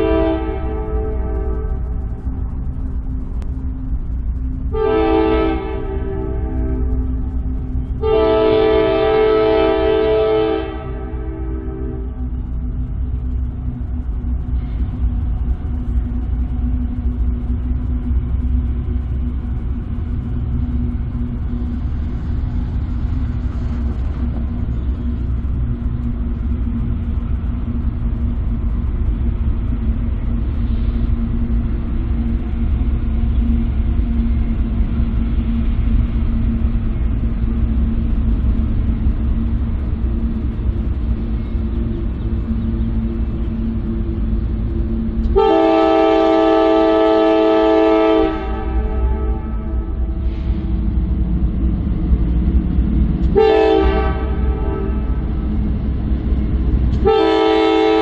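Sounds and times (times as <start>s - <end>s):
locomotive engines rumbling: 0.0s - 58.0s.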